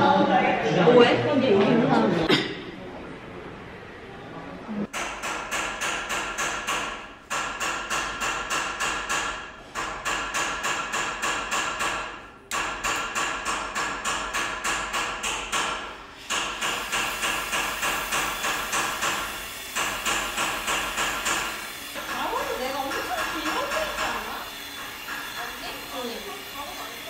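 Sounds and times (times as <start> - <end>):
hammer striking metal: 4.9 - 26.2
hissing gas torch flame: 12.6 - 27.0.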